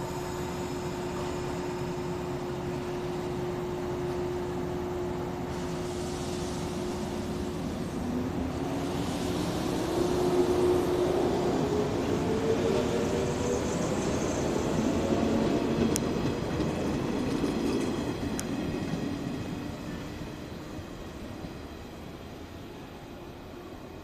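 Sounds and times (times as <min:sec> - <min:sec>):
electric train accelerating: 0:00.0 - 0:23.6
wheels rumbling on rails: 0:06.5 - 0:20.6.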